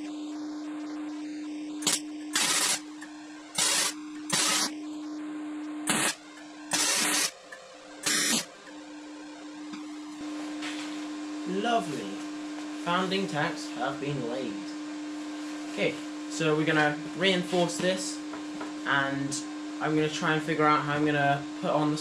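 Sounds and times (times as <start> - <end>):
welder hum: 0.0 - 22.0
welding arc crackle: 1.7 - 4.9, 5.8 - 8.6.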